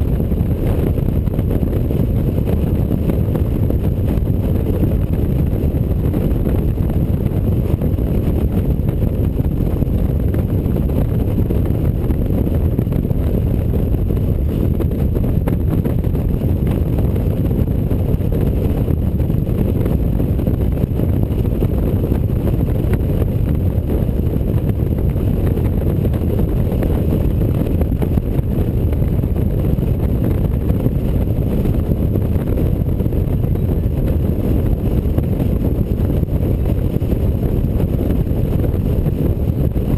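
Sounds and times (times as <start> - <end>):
motorcycle engine and tyre noise: 0.0 - 39.9
wind over microphone: 0.0 - 39.9.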